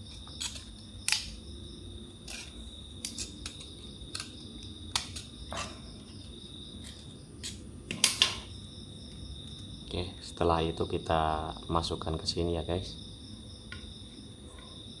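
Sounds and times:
knife scraping wire: 0:00.0 - 0:01.4, 0:02.2 - 0:08.5.

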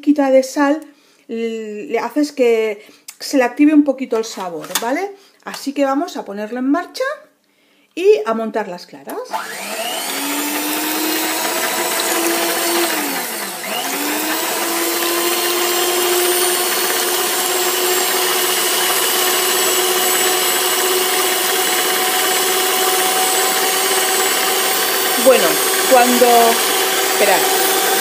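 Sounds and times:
electric stand mixer whirring: 0:09.3 - 0:28.0.

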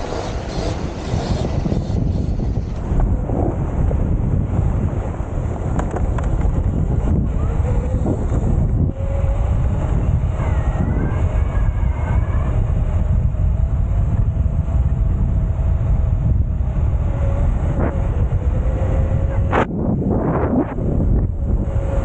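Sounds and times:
motorbike engine running: 0:00.0 - 0:19.7
wind buffeting microphone: 0:00.0 - 0:22.0.

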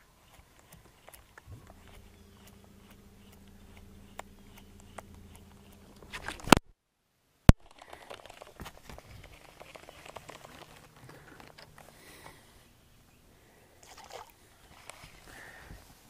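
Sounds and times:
hand rustling and scraping mic: 0:00.0 - 0:06.7, 0:07.6 - 0:13.2, 0:14.5 - 0:16.0
low steady hum: 0:00.0 - 0:16.0
sharp click: 0:00.3 - 0:06.7.

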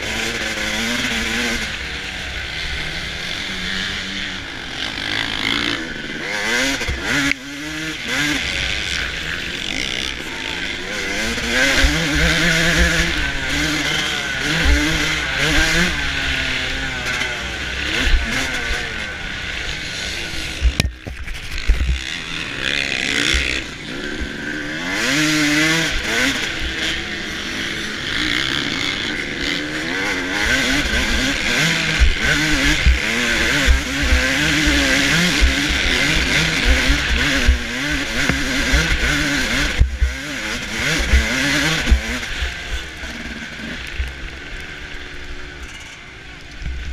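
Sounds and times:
motorcycle engine revving: 0:00.0 - 0:46.9.

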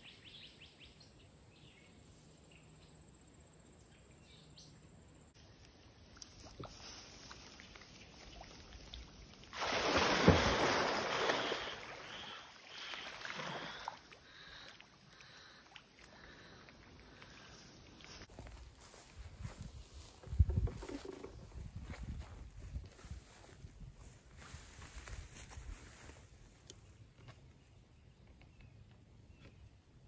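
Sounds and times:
heavy splash and churning water: 0:07.6 - 0:14.3.

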